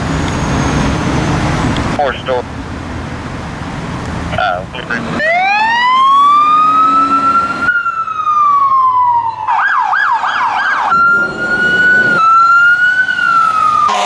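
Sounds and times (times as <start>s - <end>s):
siren wailing: 5.1s - 14.0s
siren yelping: 5.1s - 14.0s.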